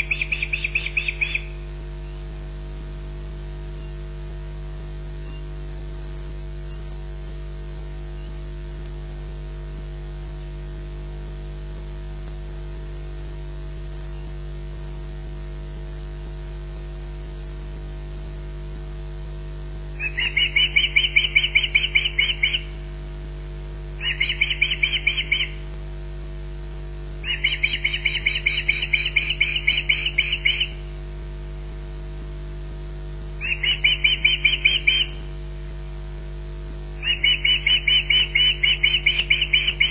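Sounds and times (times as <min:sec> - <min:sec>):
bird alarm calls: 0:00.0 - 0:01.7, 0:20.0 - 0:22.8, 0:24.0 - 0:25.7, 0:27.2 - 0:30.9, 0:33.4 - 0:35.3, 0:37.0 - 0:39.9
steady electrical hum: 0:00.0 - 0:39.9.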